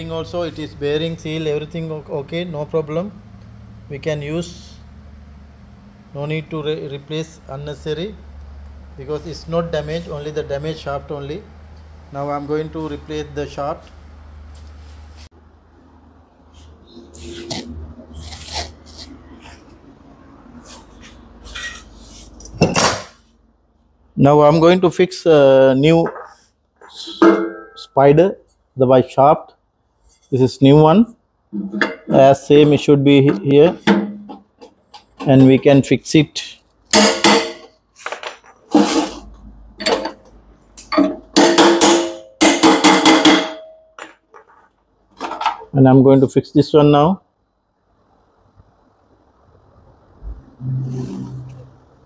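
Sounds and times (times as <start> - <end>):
hammer striking metal drum: 27.1 - 27.8, 37.0 - 37.7, 41.0 - 43.8.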